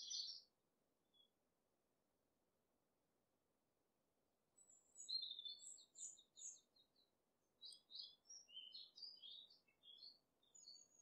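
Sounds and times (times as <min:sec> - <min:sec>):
songbird chirping and trilling: 0:00.0 - 0:00.5, 0:04.6 - 0:11.0.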